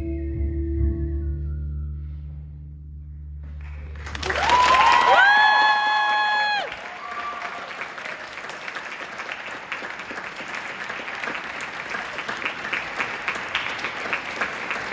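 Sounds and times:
audience applauding: 0:03.6 - 0:14.9.

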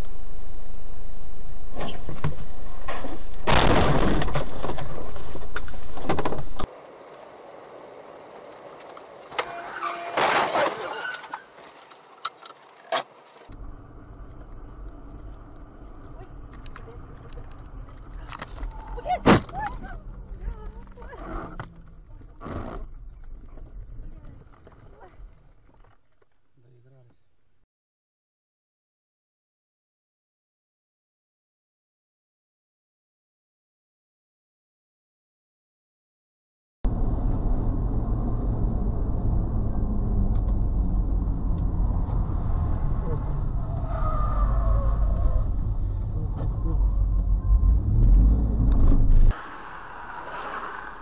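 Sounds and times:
car engine and tyre rumble: 0:04.2 - 0:10.2, 0:11.0 - 0:27.4, 0:36.9 - 0:51.0
rushing noise: 0:36.9 - 0:51.0.

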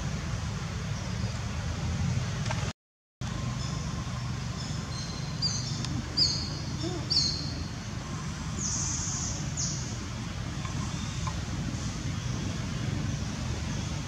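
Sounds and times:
birds chirping: 0:03.5 - 0:14.0.

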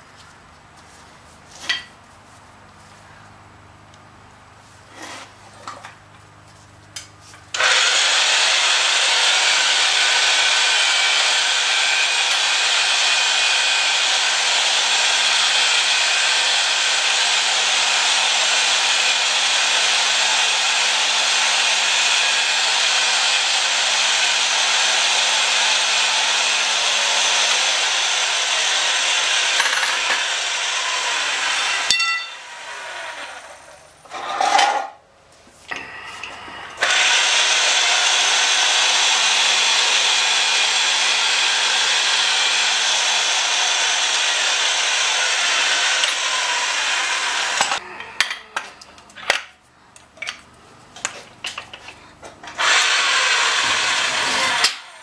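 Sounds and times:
pipe cutter metallic scraping hiss: 0:01.6 - 0:01.9.

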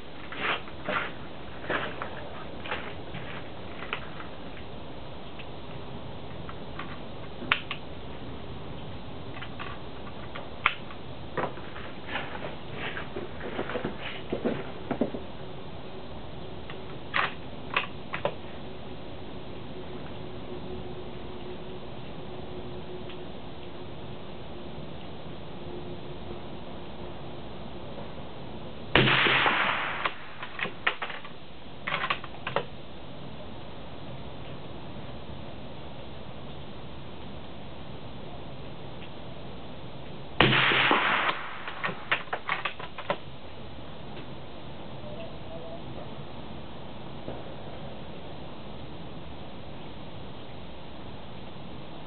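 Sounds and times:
rifle shot: 0:29.0 - 0:31.2, 0:40.4 - 0:42.6.

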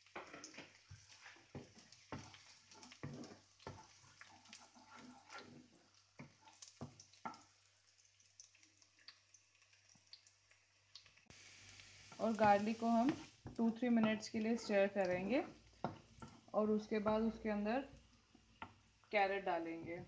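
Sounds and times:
spatula tapping and scraping pan: 0:00.0 - 0:07.5, 0:12.1 - 0:18.9
garlic sizzling in oil: 0:00.0 - 0:20.0.

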